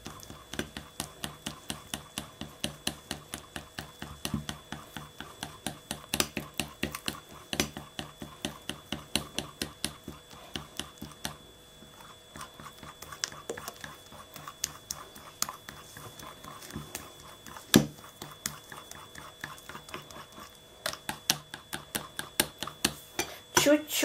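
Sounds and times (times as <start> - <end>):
fork beating batter in glass bowl: 0.0 - 23.7.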